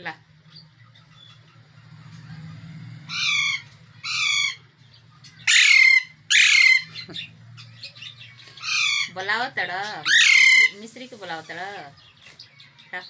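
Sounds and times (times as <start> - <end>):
parakeet squawking: 3.1 - 13.0.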